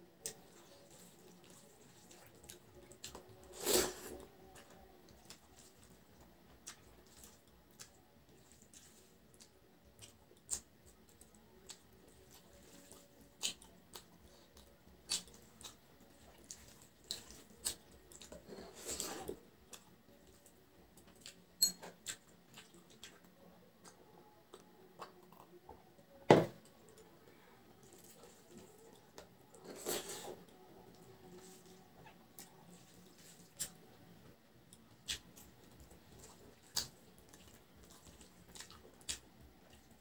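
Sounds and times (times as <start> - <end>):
mouth chewing: 0.2 - 25.8, 34.7 - 40.0.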